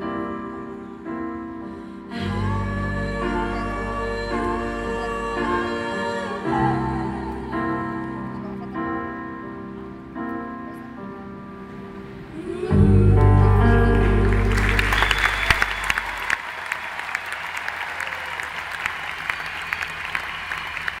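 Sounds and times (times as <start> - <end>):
crowd applauding and cheering: 13.1 - 21.0.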